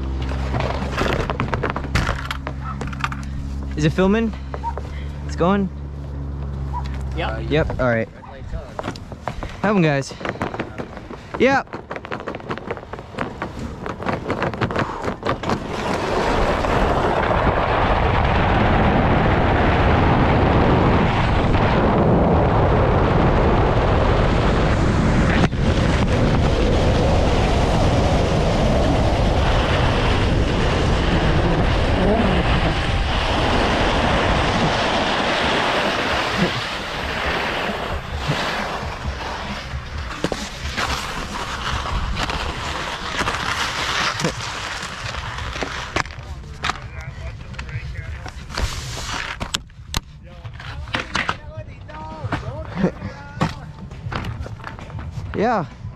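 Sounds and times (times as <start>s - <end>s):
wind rushing over camera: 6.6s - 55.9s
skis running on snow: 8.6s - 17.5s, 24.7s - 49.5s
skis landing knock: 10.2s - 16.6s, 34.4s - 46.9s.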